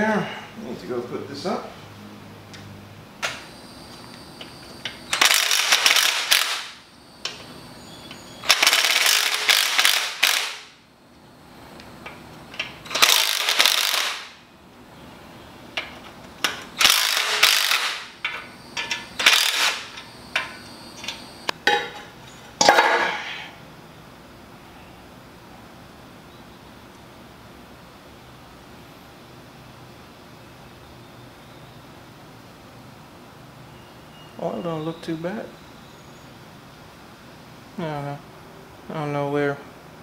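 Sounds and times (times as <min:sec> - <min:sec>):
ratchet wrench clicking: 0:05.1 - 0:06.7, 0:08.4 - 0:10.7, 0:12.8 - 0:14.3, 0:16.8 - 0:20.1.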